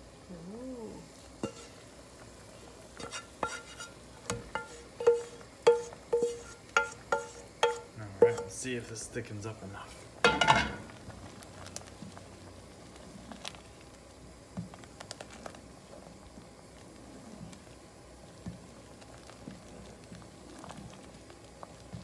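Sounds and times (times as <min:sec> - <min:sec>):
wet stirring of soup: 0:01.0 - 0:08.7, 0:09.8 - 0:22.0
spoon tapping against pot: 0:03.0 - 0:08.6.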